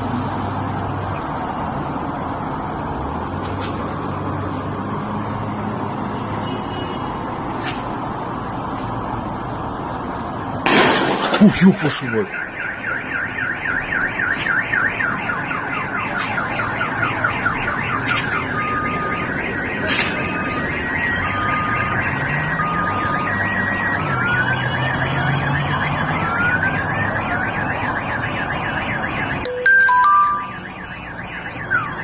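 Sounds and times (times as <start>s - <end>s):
car alarm siren: 11.0s - 32.0s.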